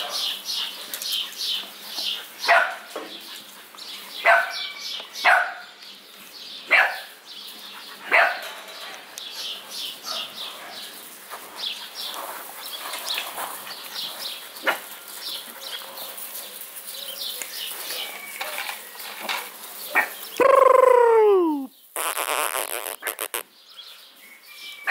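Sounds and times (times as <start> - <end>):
puppies yipping and barking: 6.7 - 19.1.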